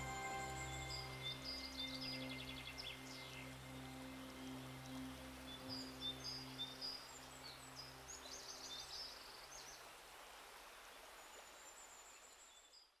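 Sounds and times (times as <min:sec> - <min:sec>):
low held tone: 0:00.0 - 0:02.4
soft outdoor hiss: 0:00.0 - 0:13.0.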